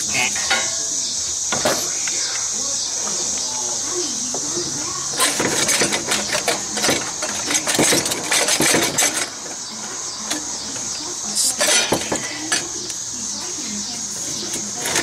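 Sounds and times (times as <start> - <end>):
steady hiss: 0.0 - 14.9
tools clanking on metal pipes: 0.3 - 0.9, 4.3 - 13.0, 14.1 - 15.0.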